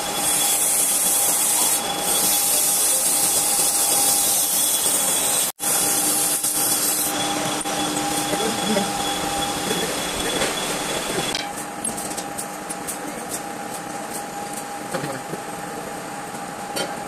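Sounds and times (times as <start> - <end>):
lathe motor whine: 0.0 - 11.4.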